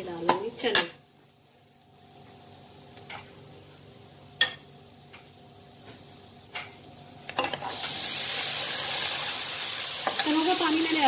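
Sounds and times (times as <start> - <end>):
loud sizzle: 0.0 - 11.0.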